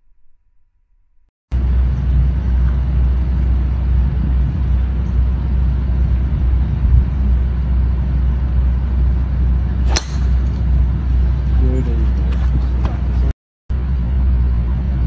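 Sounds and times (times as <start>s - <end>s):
steady low rumble: 1.5s - 15.0s
golf club striking ball: 9.8s - 10.7s.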